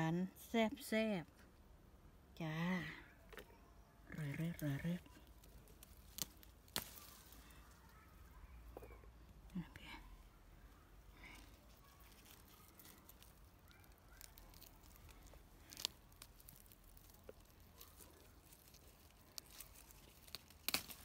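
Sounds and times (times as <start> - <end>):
rustling leaves: 4.2 - 8.7, 10.9 - 21.0
snapping clicks of berries picked: 4.4 - 7.8, 11.3 - 21.0.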